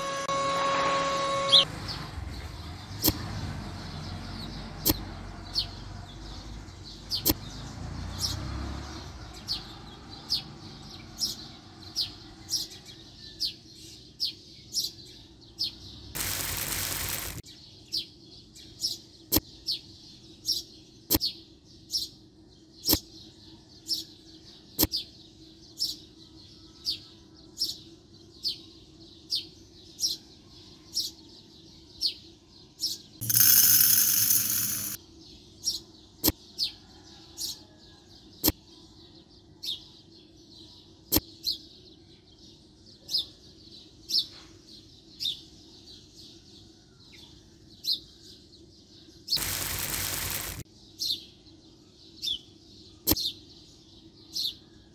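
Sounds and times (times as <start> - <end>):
small bird chirping: 3.9 - 8.4, 9.4 - 22.2, 49.1 - 51.4
rushing hiss: 16.2 - 17.4, 49.4 - 50.6.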